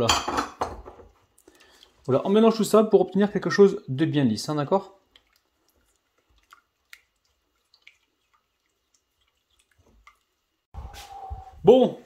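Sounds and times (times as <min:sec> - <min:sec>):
spatula stirring chocolate squelches: 0:01.1 - 0:10.7.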